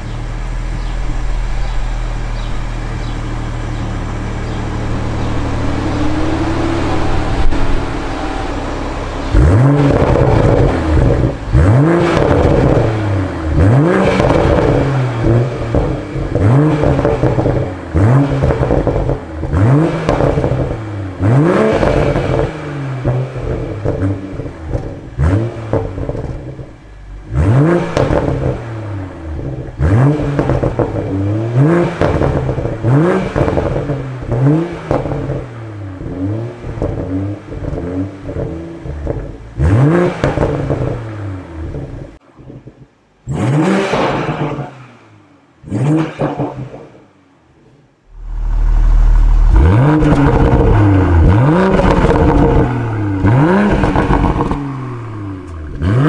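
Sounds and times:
car engine revving: 0:00.0 - 0:56.0
exhaust pops and crackles: 0:09.3 - 0:28.7, 0:29.4 - 0:44.8, 0:48.1 - 0:54.8.

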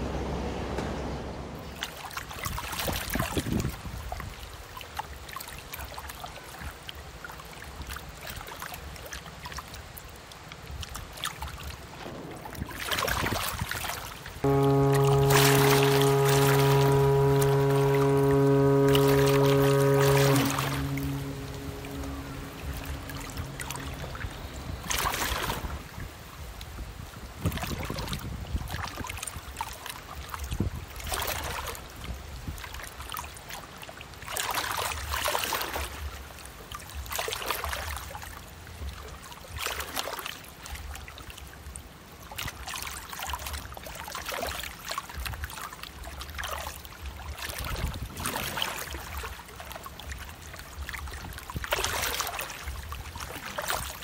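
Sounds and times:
ship wake water rushing: 0:11.6 - 0:26.2
steady low rumble: 0:14.4 - 0:26.0.

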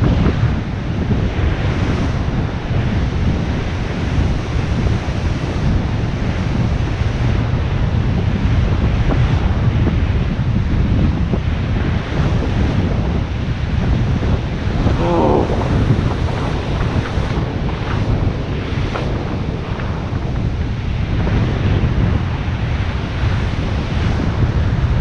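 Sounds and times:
wind buffeting on microphone: 0:00.0 - 0:25.0
surf breaking on shore: 0:13.6 - 0:25.0.

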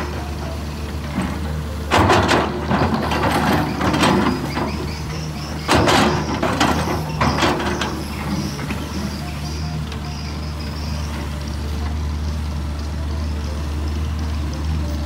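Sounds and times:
metallic clanking and scraping: 0:00.0 - 0:09.2
excavator diesel engine running: 0:00.0 - 0:15.0.

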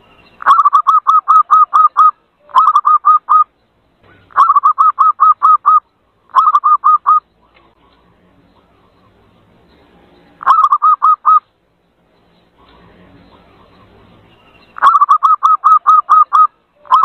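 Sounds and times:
dove cooing: 0:04.1 - 0:07.2, 0:08.6 - 0:11.4, 0:14.8 - 0:17.0.

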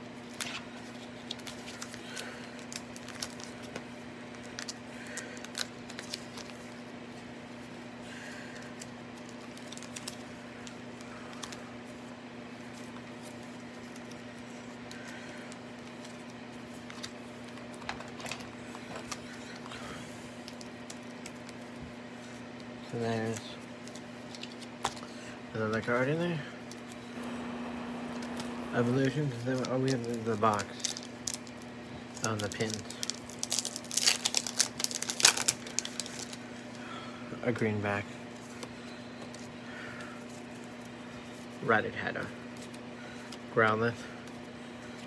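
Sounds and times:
steady low hum: 0:00.0 - 0:45.0
hands handling trading cards: 0:00.2 - 0:07.7, 0:08.6 - 0:26.0, 0:26.6 - 0:36.8.

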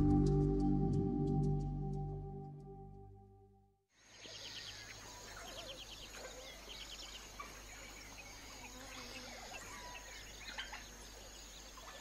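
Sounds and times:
birds chirping and trilling: 0:04.0 - 0:12.0.

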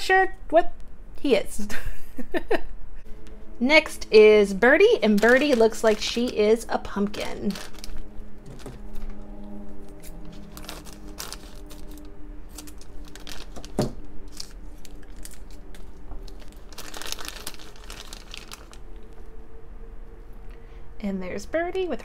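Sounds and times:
plastic bag crinkling: 0:04.8 - 0:09.2, 0:10.0 - 0:19.3.

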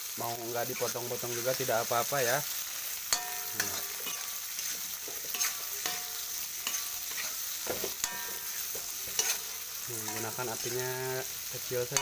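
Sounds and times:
meat sizzling in oil: 0:00.0 - 0:12.0
metal spatula scraping a wok: 0:02.5 - 0:12.0.

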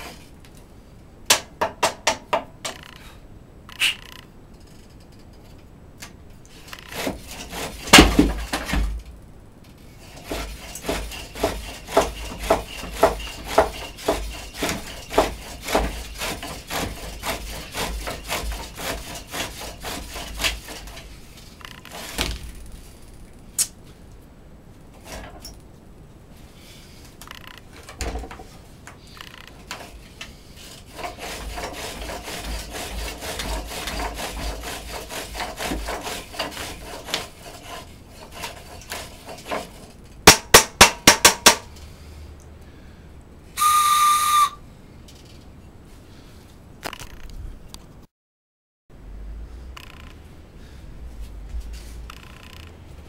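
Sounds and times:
sharp knocks: 0:01.3 - 0:03.0, 0:07.8 - 0:09.0, 0:10.2 - 0:17.1, 0:39.6 - 0:41.7
drill bit scraping wood: 0:06.5 - 0:08.3, 0:10.0 - 0:22.2, 0:29.1 - 0:39.9
short clear whistle: 0:43.6 - 0:44.6.

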